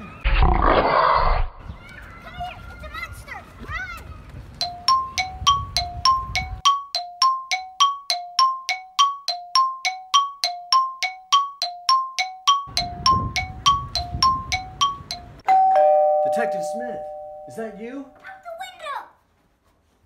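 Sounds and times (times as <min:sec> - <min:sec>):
metallic chime struck: 0:12.5 - 0:18.2.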